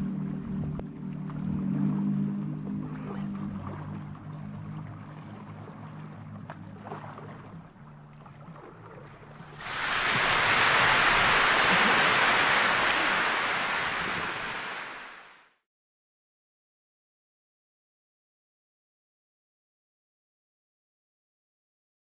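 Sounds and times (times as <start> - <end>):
sea water lapping rocky shore: 2.6 - 15.4.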